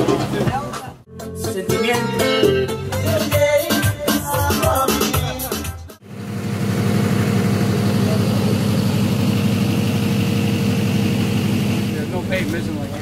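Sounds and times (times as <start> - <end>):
background music: 0.0 - 6.0
engine idling: 6.0 - 13.0.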